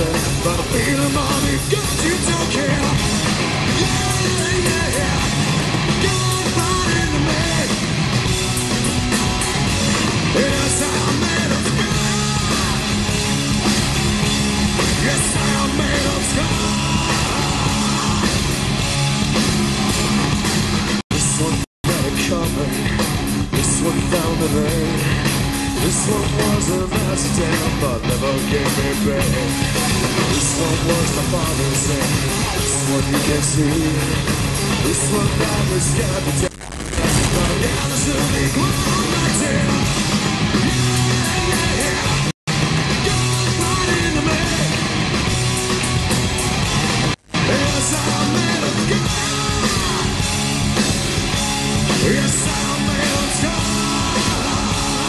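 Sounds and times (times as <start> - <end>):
man singing: 0.0 - 3.1, 3.7 - 7.8, 10.3 - 13.0, 14.8 - 18.5, 21.2 - 40.1, 40.9 - 42.3, 43.0 - 44.8, 47.4 - 50.3, 51.9 - 55.0
distorted electric guitars: 0.0 - 55.0
drums: 0.0 - 55.0.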